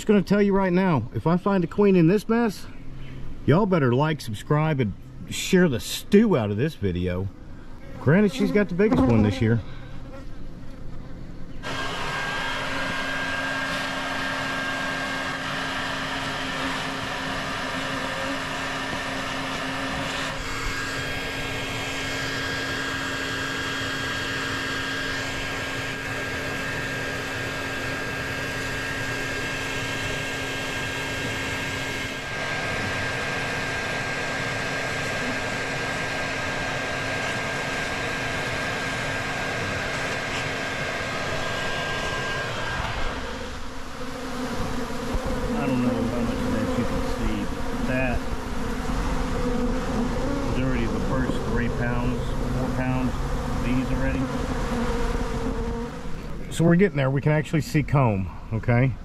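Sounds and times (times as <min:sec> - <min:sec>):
bees buzzing: 0:07.8 - 0:56.7
vacuum running: 0:11.6 - 0:56.6.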